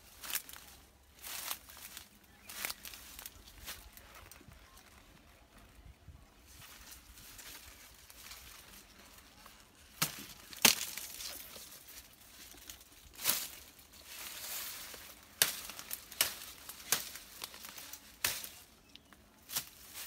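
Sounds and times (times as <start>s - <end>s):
dry leaves rustling and crunching: 0.0s - 20.0s
knife cracking through cane stalks: 9.9s - 11.7s, 14.6s - 20.0s.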